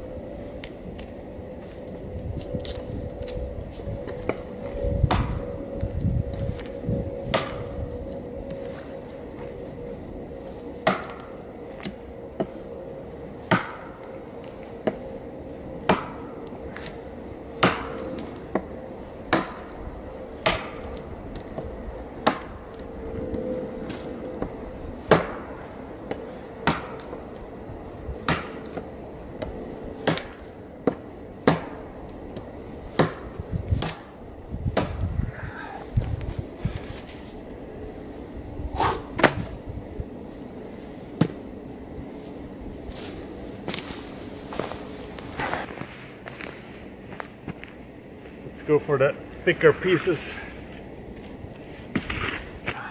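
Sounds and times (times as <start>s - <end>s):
knife chopping dry branch: 10.8s - 12.5s, 13.5s - 15.0s, 15.8s - 17.0s, 17.6s - 18.7s, 19.3s - 19.8s, 20.4s - 22.5s, 23.9s - 27.2s, 28.2s - 34.1s, 34.8s - 35.1s.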